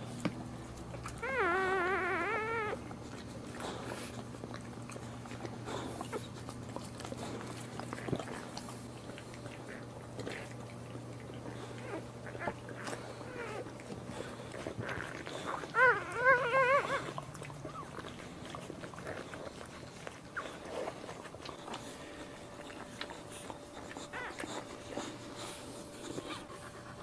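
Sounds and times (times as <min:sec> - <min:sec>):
steady low hum: 0:00.0 - 0:27.0
puppy crying: 0:01.0 - 0:02.9, 0:11.8 - 0:13.9, 0:14.8 - 0:18.2, 0:23.7 - 0:25.1.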